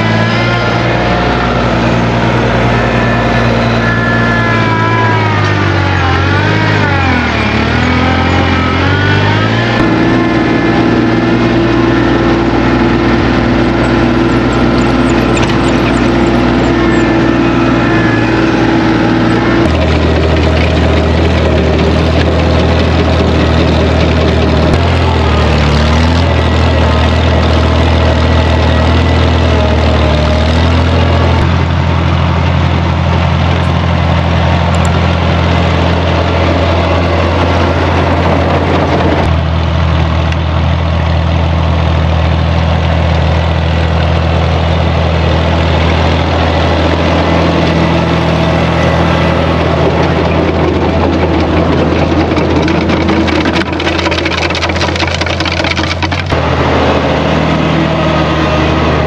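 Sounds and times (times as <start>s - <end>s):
tractor engine running: 0.0s - 59.0s
rattles: 49.5s - 56.4s.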